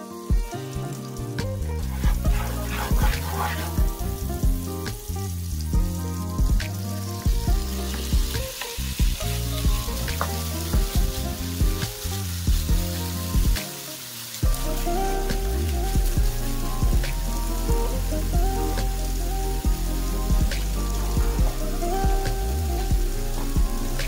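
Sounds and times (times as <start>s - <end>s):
background music: 0.0s - 24.0s
chicken pieces sizzling: 0.0s - 24.0s
mayonnaise sizzling in frying pan: 0.0s - 24.0s
wooden spatula scraping pan: 1.8s - 4.4s.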